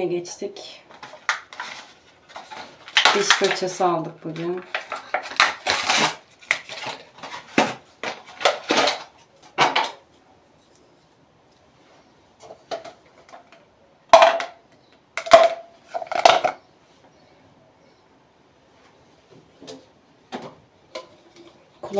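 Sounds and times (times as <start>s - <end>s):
plastic packaging crackling: 0.9s - 10.0s.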